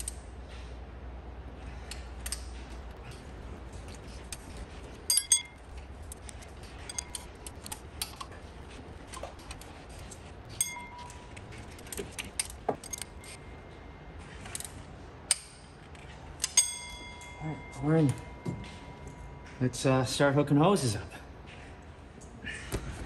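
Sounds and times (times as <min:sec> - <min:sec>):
low steady hum: 0:00.0 - 0:23.0
metal hand tools clinking: 0:02.2 - 0:13.4.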